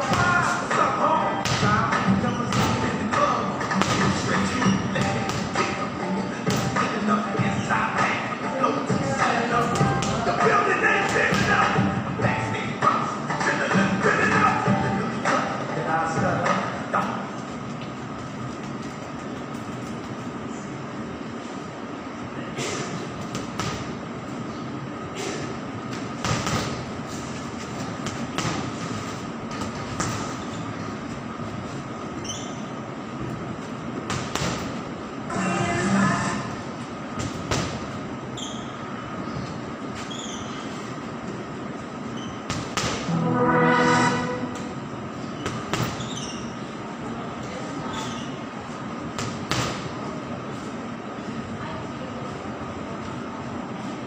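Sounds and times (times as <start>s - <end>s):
steady pitched tone: 43.0s - 45.1s.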